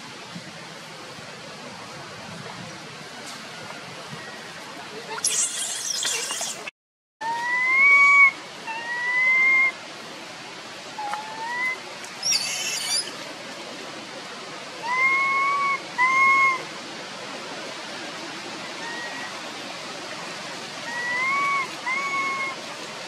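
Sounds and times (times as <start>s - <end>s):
monkey squeal: 5.2s - 6.7s, 11.2s - 13.2s, 20.9s - 22.6s
baby monkey whistle-like coos: 5.2s - 9.7s, 11.0s - 13.2s, 14.8s - 16.6s, 20.9s - 22.6s.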